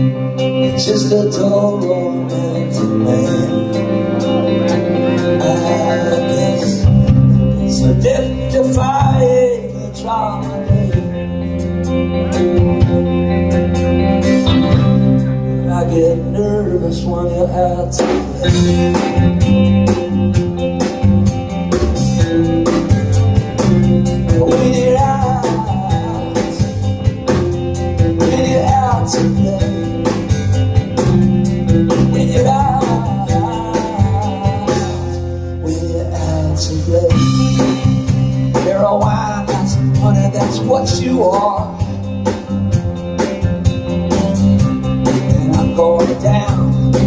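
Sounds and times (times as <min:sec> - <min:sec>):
man singing into a microphone: 0:00.0 - 0:04.4, 0:05.0 - 0:11.5, 0:15.5 - 0:18.9, 0:23.6 - 0:26.8, 0:28.0 - 0:30.4, 0:31.8 - 0:42.1, 0:45.2 - 0:47.0
electric guitar: 0:00.0 - 0:47.0
live rock band playing: 0:00.0 - 0:47.0.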